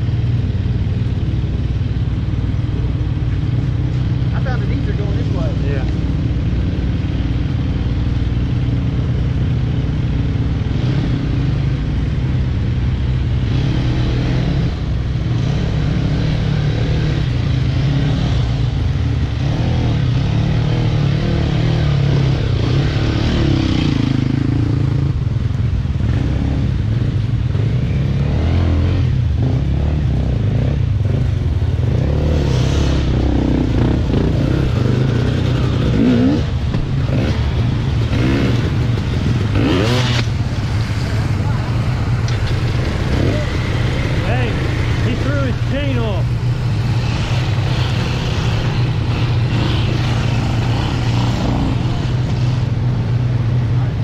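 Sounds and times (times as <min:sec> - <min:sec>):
dirt bike engines idling: 0:00.0 - 0:26.2, 0:33.0 - 0:54.0
dirt bike engine revving: 0:13.4 - 0:25.1, 0:26.0 - 0:53.1.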